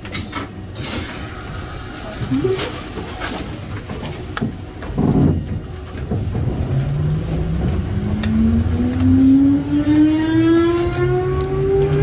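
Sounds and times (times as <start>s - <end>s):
train traction motors whining: 4.1s - 12.0s
low rumble of running gear: 4.8s - 9.5s.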